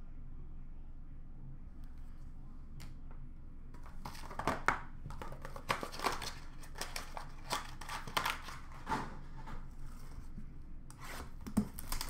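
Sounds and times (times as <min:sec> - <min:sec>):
wrapping crinkling and tearing: 0:03.8 - 0:09.2, 0:11.4 - 0:12.0.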